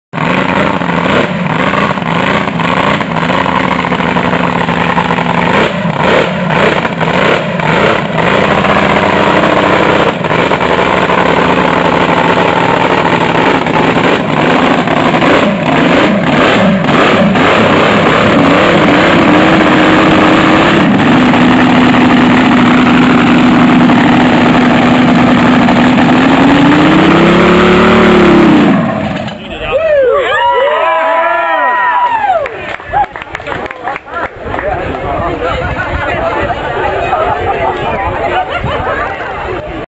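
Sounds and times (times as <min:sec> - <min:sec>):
boat engine running: 0:00.2 - 0:29.6.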